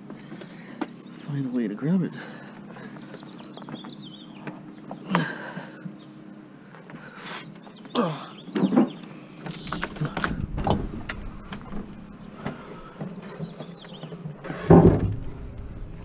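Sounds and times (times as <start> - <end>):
metal cabinet scraping and knocking: 9.6 - 12.1, 14.2 - 16.0
loud heavy thump: 10.2 - 12.0, 14.5 - 16.0.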